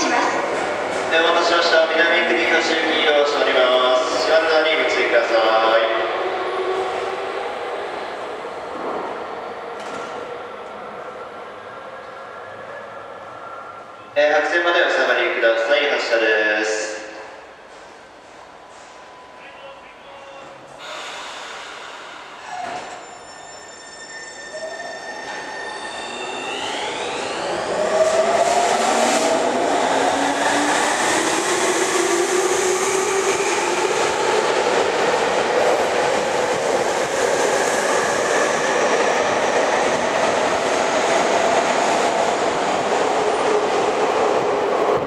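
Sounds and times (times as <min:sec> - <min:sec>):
train wheels on rail: 0:08.7 - 0:10.8.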